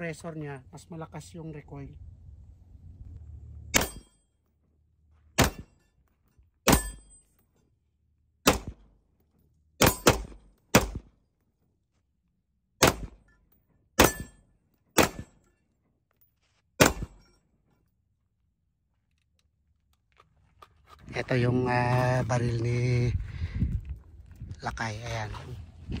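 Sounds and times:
rifle shots: 0:05.4 - 0:05.7, 0:08.4 - 0:08.9, 0:09.8 - 0:11.1, 0:12.8 - 0:13.2, 0:15.0 - 0:15.4, 0:16.8 - 0:17.2.

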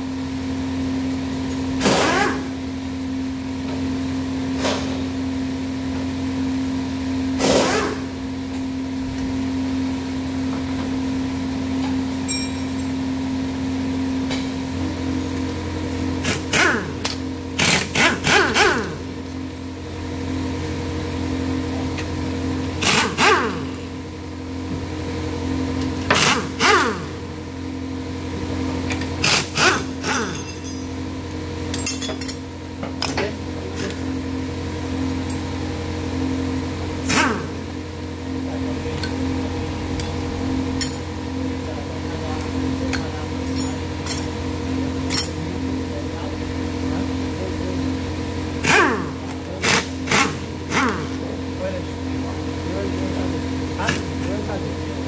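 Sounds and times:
workshop machinery hum: 0:00.0 - 0:55.0
metallic tool clinks: 0:12.3 - 0:12.9.

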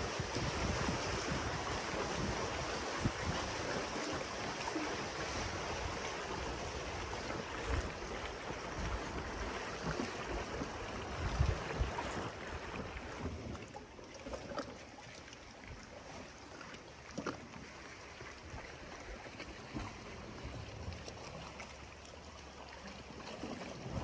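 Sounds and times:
wind buffeting microphone: 0:00.0 - 0:04.0, 0:05.5 - 0:13.2
water rushing and lapping: 0:00.0 - 0:24.0.

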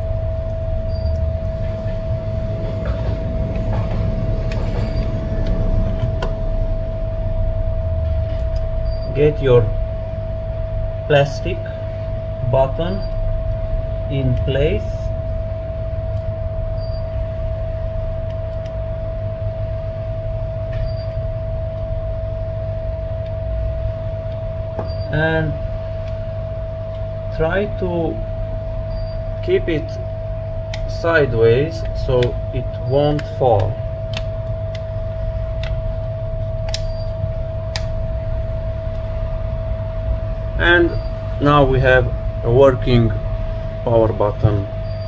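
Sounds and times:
steady machine hum: 0:00.0 - 0:45.0.

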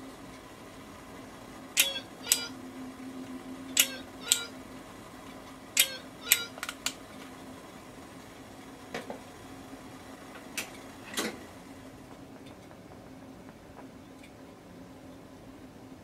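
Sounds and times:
electronic cuckoo timer alarm: 0:01.8 - 0:02.6, 0:03.6 - 0:04.6, 0:05.8 - 0:06.6.

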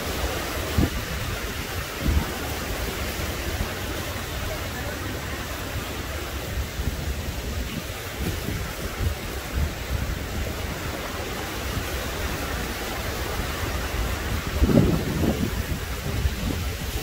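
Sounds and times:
surf washing on shore: 0:00.0 - 0:17.0.

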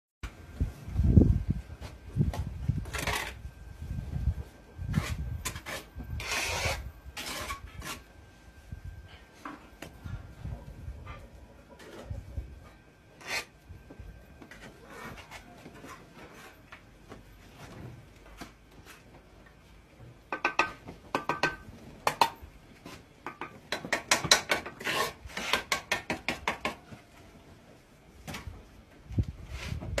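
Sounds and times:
trowel scraping mortar: 0:02.8 - 0:03.5, 0:04.9 - 0:08.1, 0:13.2 - 0:13.6, 0:23.8 - 0:26.8.

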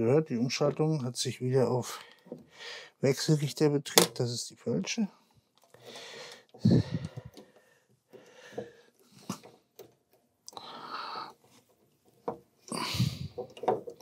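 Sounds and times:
close breathing: 0:01.9 - 0:03.0, 0:05.7 - 0:09.4, 0:10.5 - 0:11.5, 0:12.7 - 0:13.4.

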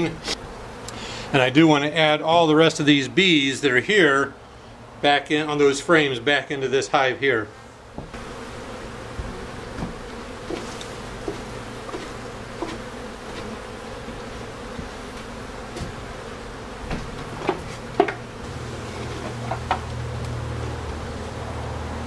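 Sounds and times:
honeybees buzzing: 0:00.0 - 0:22.0
wooden knocks of hive boxes: 0:07.9 - 0:08.4, 0:09.1 - 0:21.1.

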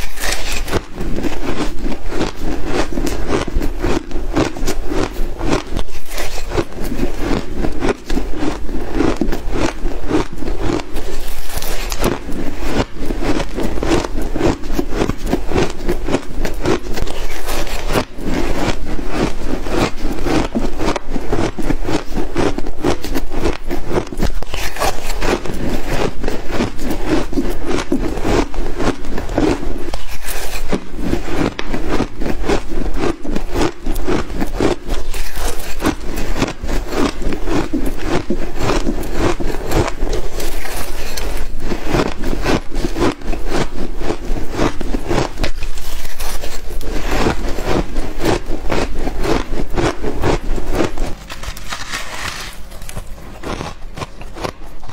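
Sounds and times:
chewing ice crunching: 0:00.0 - 0:54.9.

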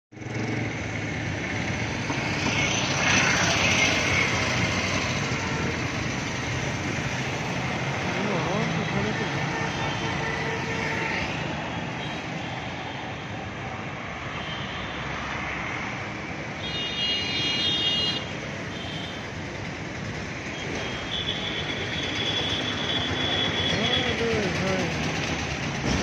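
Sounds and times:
road traffic passing: 0:00.1 - 0:26.0
long steady horn: 0:08.2 - 0:12.2
high-pitched vehicle horn: 0:08.9 - 0:12.3.

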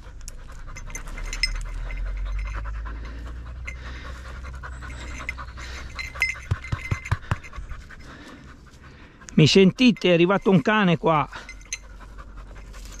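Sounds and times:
dog panting: 0:00.0 - 0:13.0.

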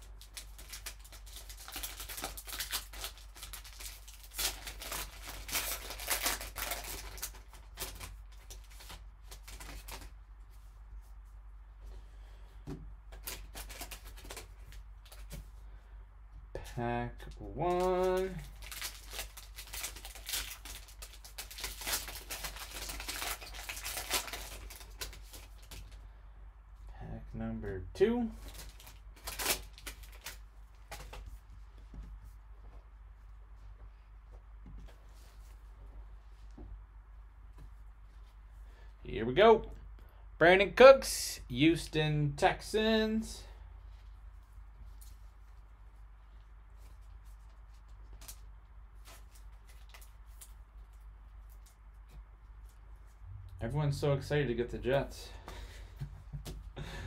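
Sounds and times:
foil wrapper tearing and crinkling: 0:00.0 - 0:10.1, 0:13.1 - 0:15.3, 0:17.7 - 0:26.0, 0:28.5 - 0:31.2, 0:46.8 - 0:52.8.

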